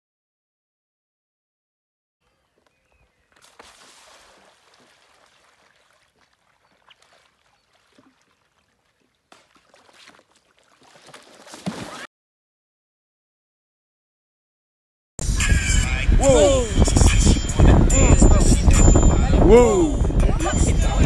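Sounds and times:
pool water lapping and splashing: 0:02.9 - 0:12.1.

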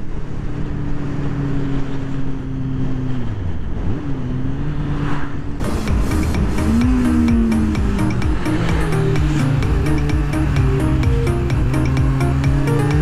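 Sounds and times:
motorcycle engine cruising: 0:00.0 - 0:13.0
electronic music with steady beat: 0:05.6 - 0:13.0.

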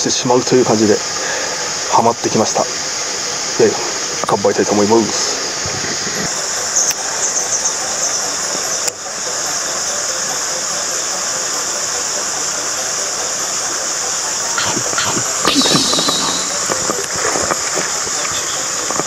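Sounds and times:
outdoor hiss: 0:00.0 - 0:19.0
high-pitched drone: 0:14.2 - 0:17.4.

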